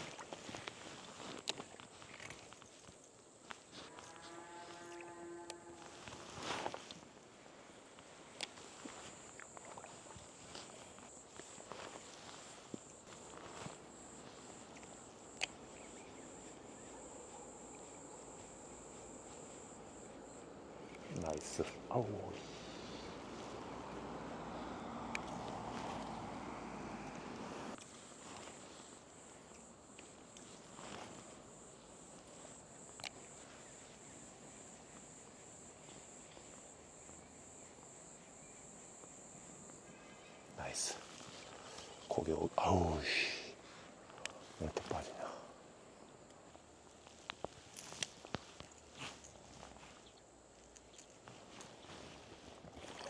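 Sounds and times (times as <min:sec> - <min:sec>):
crickets chirping: 0:00.0 - 0:53.0.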